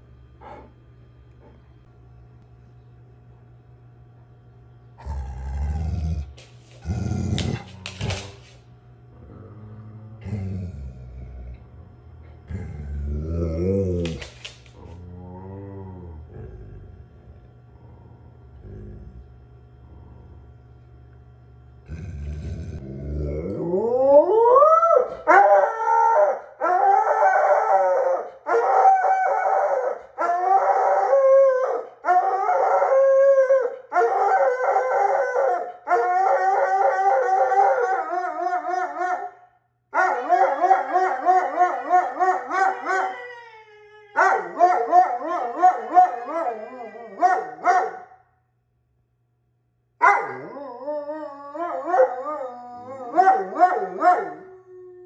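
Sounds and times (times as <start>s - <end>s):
dog howling: 23.0s - 39.4s, 40.0s - 47.8s, 50.2s - 55.0s.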